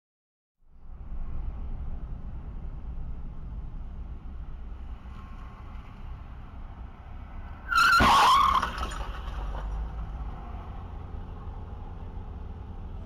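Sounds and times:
road rumble inside car: 0.6s - 13.0s
tyres screeching: 7.6s - 9.8s.

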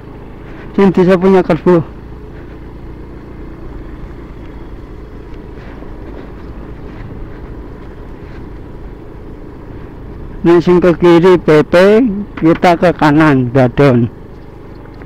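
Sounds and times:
scooter engine running: 0.0s - 15.0s
wind and road rumble: 0.0s - 15.0s.

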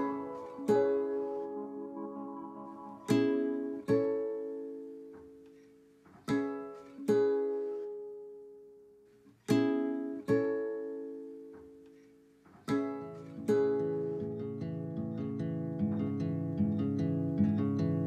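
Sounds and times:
slow guitar chords: 0.0s - 5.4s.

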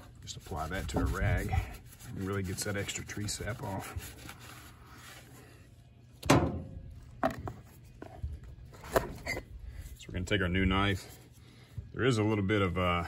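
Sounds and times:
rag rubbing on steel: 0.0s - 5.2s.

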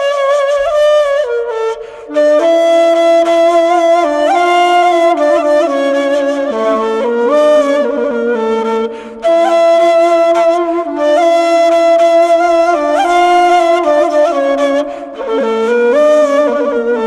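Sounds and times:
flute playing slow melody: 0.0s - 17.0s.

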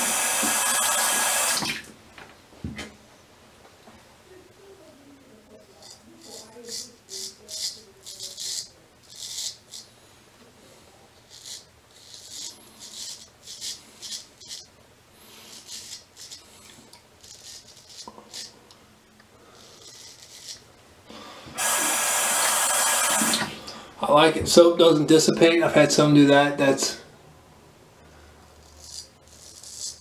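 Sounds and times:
razor scraping stubble: 5.6s - 9.9s, 11.2s - 18.6s, 19.5s - 20.7s, 28.5s - 30.0s.

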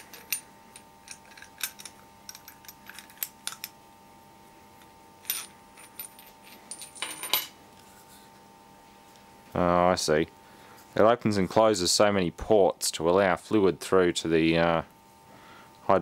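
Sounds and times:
steel parts clicking and clinking: 0.0s - 3.7s.

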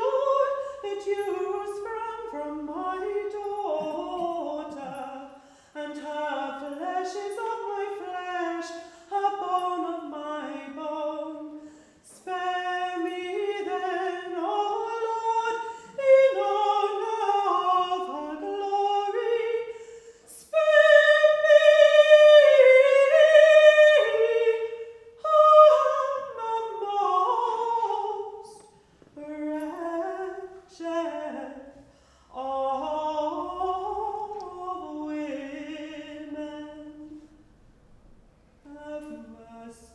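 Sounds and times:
person singing unaccompanied: 0.0s - 19.7s, 38.7s - 39.9s
singer breathing: 5.3s - 5.8s, 11.5s - 12.1s, 19.7s - 20.3s, 31.8s - 32.4s.

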